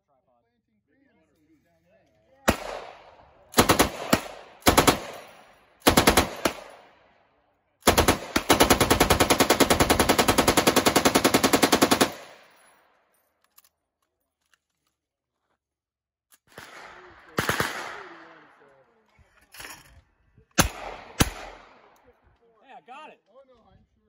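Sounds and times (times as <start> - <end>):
machine gun bursts echoing: 3.5 - 6.8, 7.8 - 12.6.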